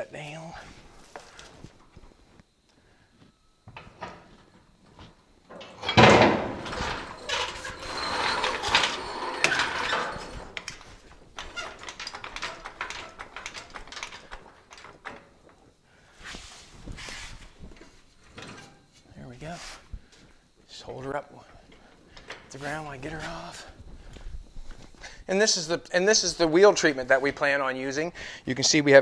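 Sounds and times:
jack wheels rattling: 5.6 - 15.6
jack scraping on concrete: 6.6 - 10.6.

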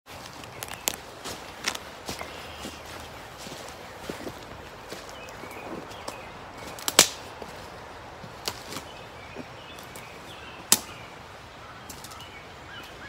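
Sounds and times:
footsteps through dry leaves: 0.1 - 10.3
twigs cracking sharply: 0.2 - 2.3, 6.0 - 7.5, 8.4 - 8.9, 10.7 - 11.0, 11.8 - 13.0.

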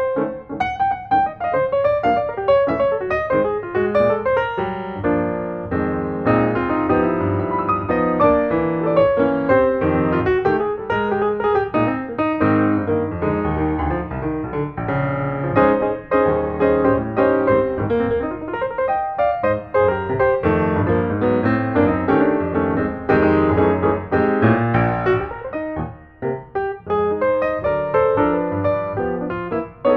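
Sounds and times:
piano music: 0.0 - 29.9.

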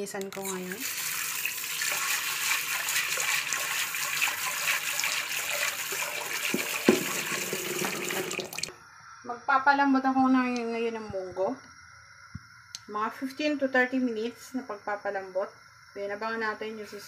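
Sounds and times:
water splashing in a pot: 0.4 - 8.7
knock: 6.5 - 8.0.

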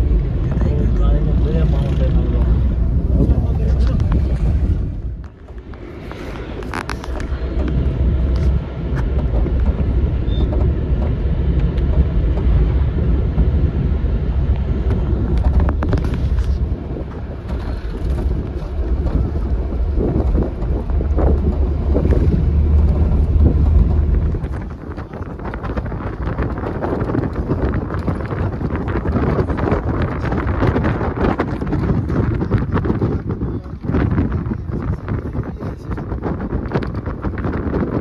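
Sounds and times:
low rumble of engine and tyres: 0.0 - 38.0
light knocks and rattles: 6.4 - 13.6.

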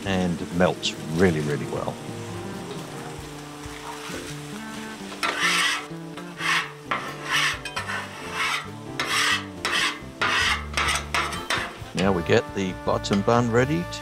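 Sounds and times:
spatula scraping steel griddle: 5.2 - 12.2.

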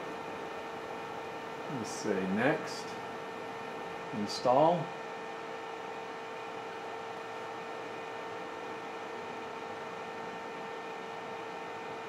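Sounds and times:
background hum and hiss: 0.0 - 12.0.

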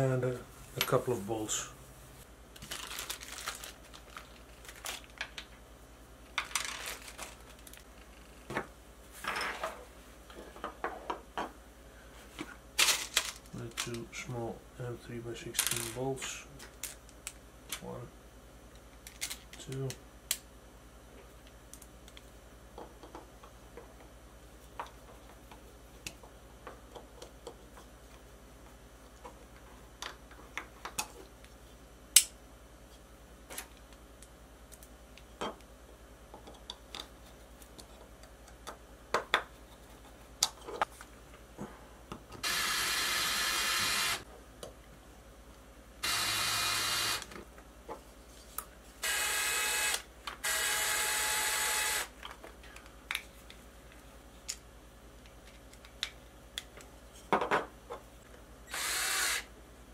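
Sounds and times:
cordless drill driving bolts: 42.4 - 44.2, 46.0 - 47.3, 49.0 - 52.1, 58.7 - 59.5.

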